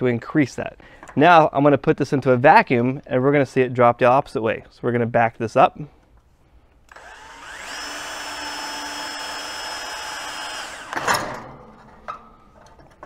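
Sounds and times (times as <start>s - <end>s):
power drill motor running: 6.9s - 11.1s.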